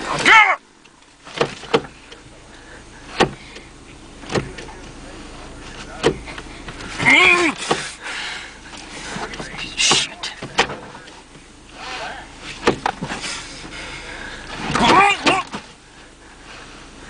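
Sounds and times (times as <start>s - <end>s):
seatbelt latch clicks and knocks: 0.2s - 2.2s, 3.2s - 4.7s, 6.0s - 6.9s, 9.2s - 11.2s, 12.6s - 13.2s.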